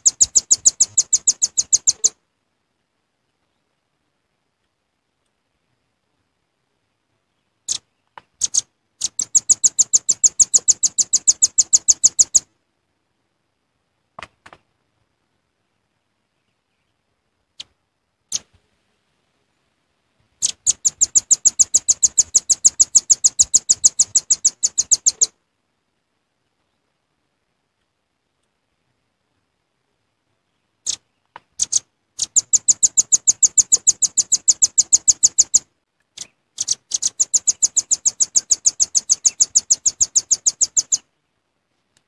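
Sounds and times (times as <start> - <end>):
bird calling with trills: 0.0 - 2.2, 7.7 - 12.5, 20.4 - 25.3, 30.8 - 35.6, 36.2 - 41.1.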